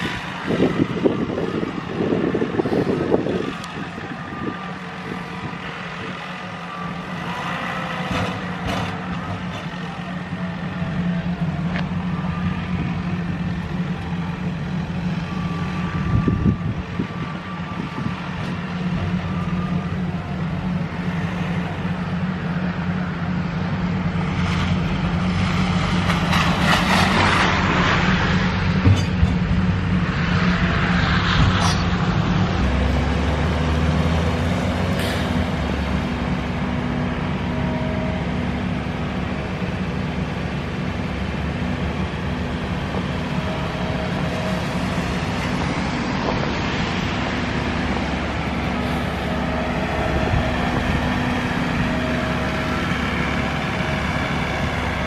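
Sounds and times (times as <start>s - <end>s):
tractor engine drone: 0.0s - 55.0s.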